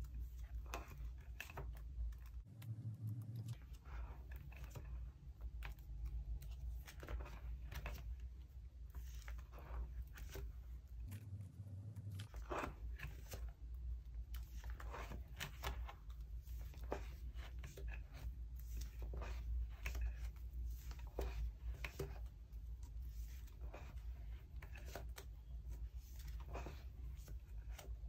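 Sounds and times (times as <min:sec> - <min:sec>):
steady low hum: 0:02.2 - 0:06.6.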